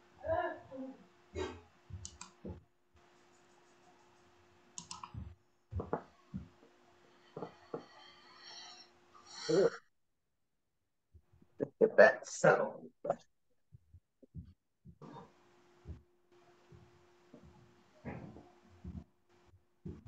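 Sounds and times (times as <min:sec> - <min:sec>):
faint steady hum: 0:13.9 - 0:20.0.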